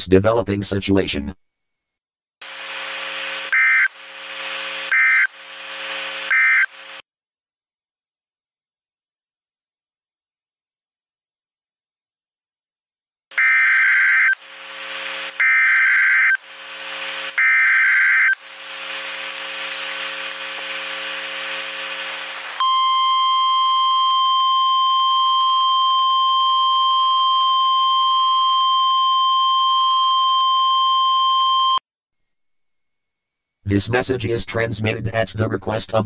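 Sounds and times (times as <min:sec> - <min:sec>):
screechy data tone bursts: 0:03.2 - 0:04.1, 0:04.8 - 0:05.4, 0:06.2 - 0:06.9, 0:13.4 - 0:23.8
steady attention tone: 0:13.3 - 0:26.3.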